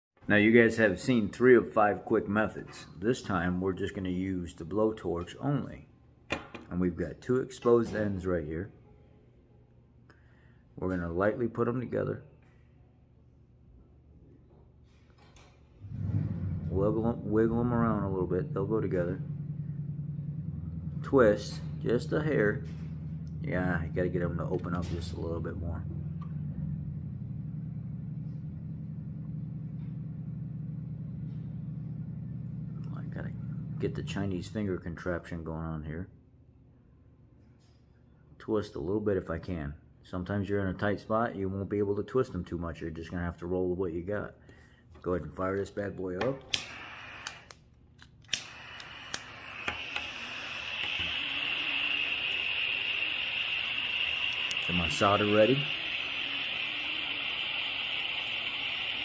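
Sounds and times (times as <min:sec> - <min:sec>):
low background hum: 0:00.2 - 0:59.0
torch igniter clicks: 0:46.2 - 0:59.0
burning gas hissing: 0:46.4 - 0:47.6, 0:48.3 - 0:59.0.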